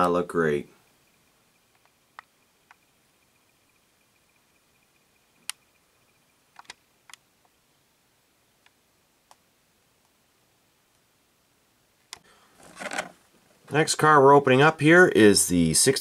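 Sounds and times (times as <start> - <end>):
plastic packaging rustle: 12.5 - 13.2.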